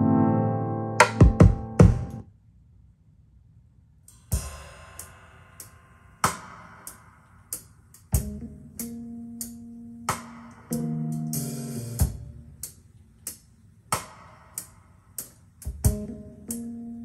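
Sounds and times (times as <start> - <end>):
music through loudspeaker: 0.8 - 2.2
drum and cymbal hits: 1.0 - 2.2, 4.1 - 8.9, 10.1 - 12.7, 13.3 - 16.6.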